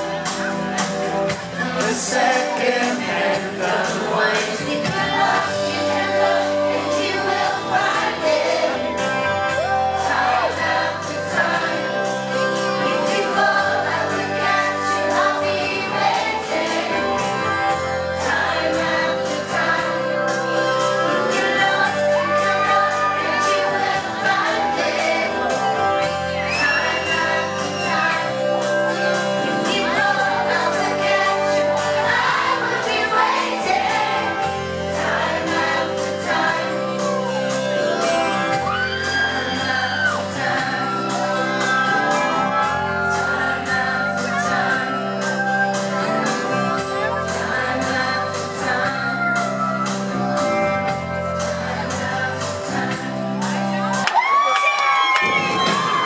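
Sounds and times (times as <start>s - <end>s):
live pop band music: 0.0s - 56.0s
woman singing: 46.6s - 50.3s.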